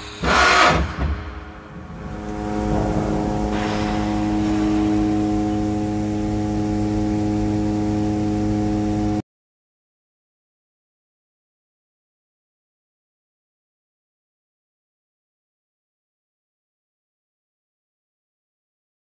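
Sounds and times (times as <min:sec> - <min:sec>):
hiss: 0:00.0 - 0:01.0
machine hum with fixed tones: 0:00.0 - 0:09.2.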